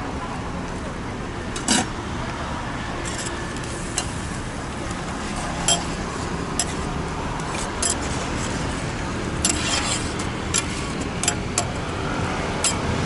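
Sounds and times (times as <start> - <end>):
street noise hum: 0.0 - 13.0
metal spatula scraping steel pan: 9.4 - 10.9.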